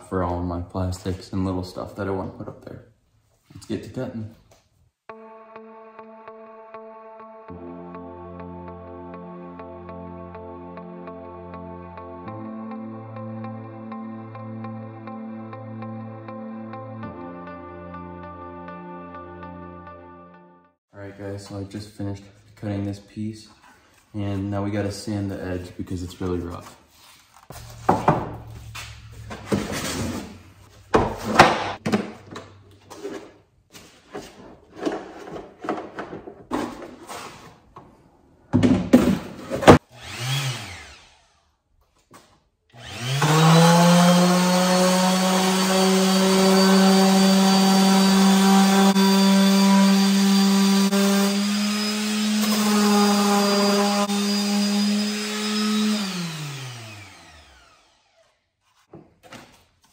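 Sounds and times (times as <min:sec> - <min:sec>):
electric power sander running: 0:27.5 - 0:30.4, 0:39.9 - 0:41.4, 0:42.8 - 0:58.4
plastic knocking and clattering: 0:34.8 - 0:36.9.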